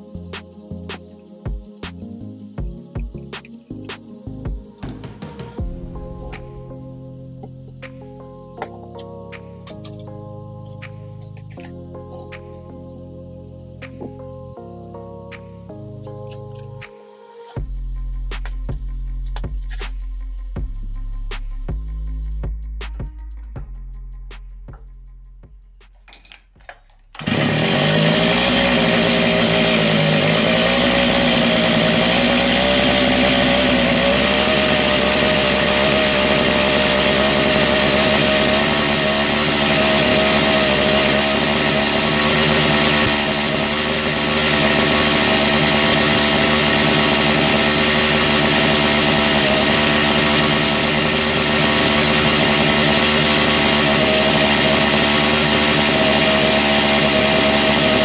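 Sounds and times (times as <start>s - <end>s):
brush cutter engine running: 26.1s - 58.0s.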